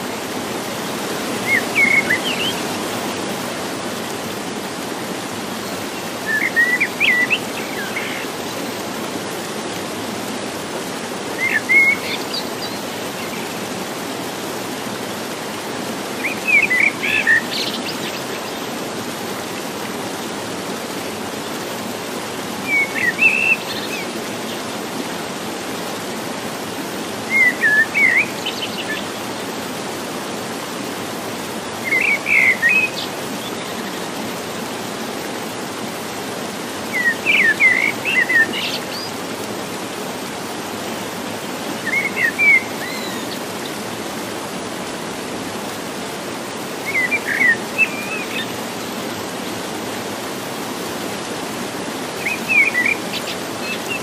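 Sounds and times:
stream cascade rushing: 0.0s - 54.0s
songbird chirping: 1.3s - 2.8s, 52.2s - 54.0s.

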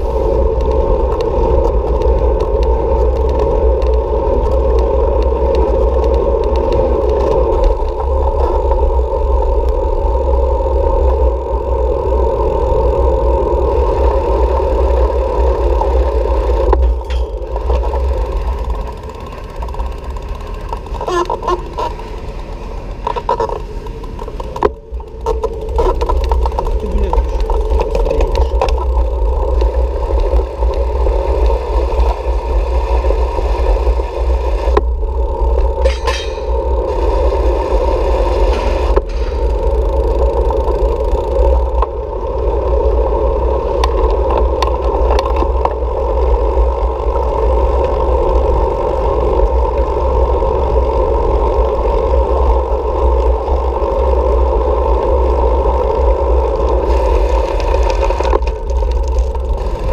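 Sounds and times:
constant hum: 0.0s - 59.9s
wind rumble on microphone: 0.0s - 59.9s.

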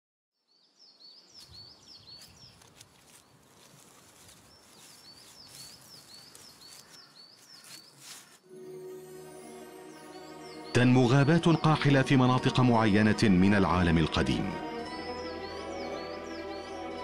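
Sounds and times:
small bird chirping: 0.5s - 8.4s.

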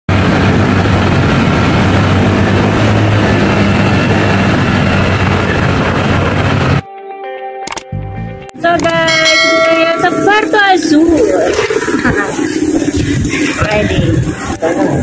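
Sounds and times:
low engine hum: 0.1s - 6.8s
wind and road noise rushing: 0.1s - 6.8s, 9.4s - 15.0s.

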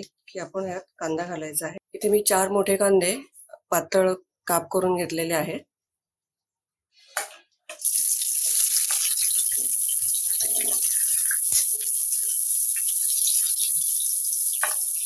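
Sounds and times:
onions sizzling in hot oil: 7.8s - 15.0s.

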